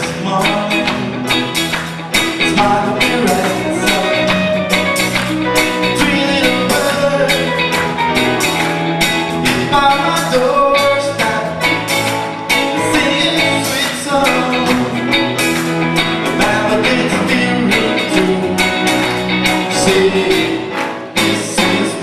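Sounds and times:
bass: 0.0s - 22.0s
drum kit steady beat: 0.0s - 22.0s
electric guitars: 0.0s - 22.0s
piano: 0.0s - 22.0s
voices singing: 19.6s - 22.0s.

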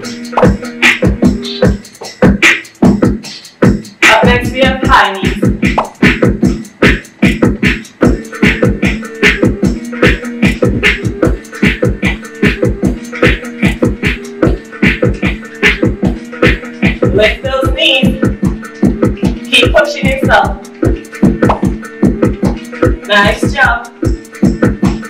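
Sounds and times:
upbeat dance music: 0.0s - 25.0s.

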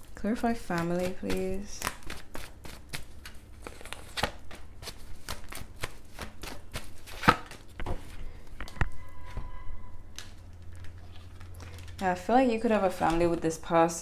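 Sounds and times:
cards being shuffled: 0.7s - 8.8s, 10.1s - 12.0s.

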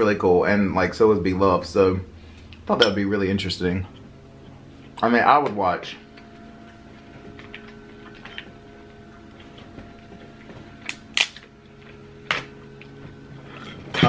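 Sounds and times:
low hum: 0.0s - 14.0s
crab shell cracking: 10.8s - 11.5s.

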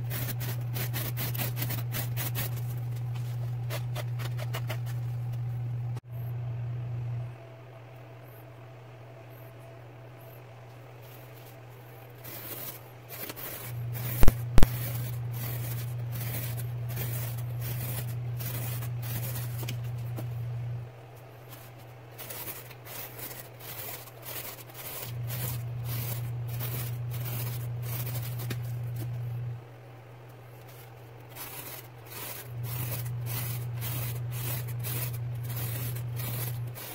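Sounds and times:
knife slicing cardboard: 0.0s - 5.0s, 12.2s - 20.2s
low hum: 0.0s - 36.9s.

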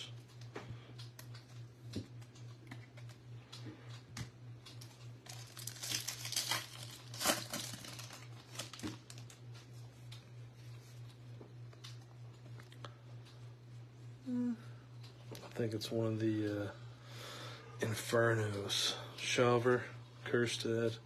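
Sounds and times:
low steady hum: 0.0s - 21.0s
foil wrapper tearing and crinkling: 5.2s - 9.4s.

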